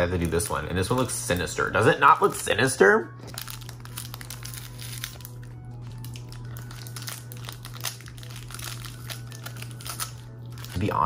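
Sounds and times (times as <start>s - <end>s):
plastic wrapper crinkling: 0.0s - 11.0s.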